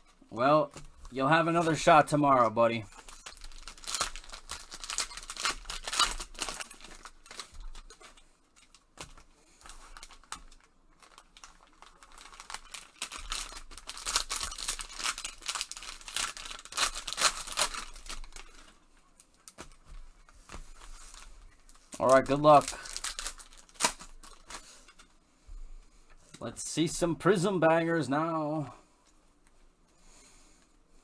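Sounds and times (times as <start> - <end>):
plastic wrappers tearing and crinkling: 2.9 - 24.8.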